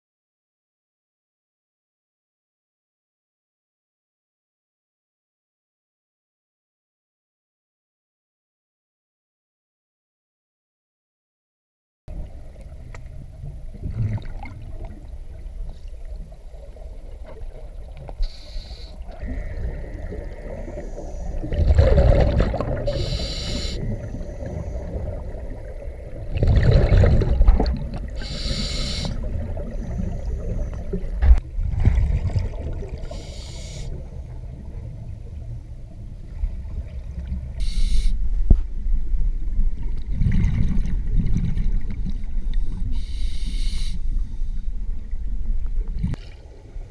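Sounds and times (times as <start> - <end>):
low underwater rumble: 12.1 - 46.9
exhaled bubbles bursting: 13.8 - 15.0, 19.1 - 33.2, 40.0 - 42.2
regulator inhale hiss: 18.2 - 21.4, 22.9 - 24.1, 28.2 - 29.3, 33.0 - 34.0, 37.6 - 38.2, 42.8 - 44.6.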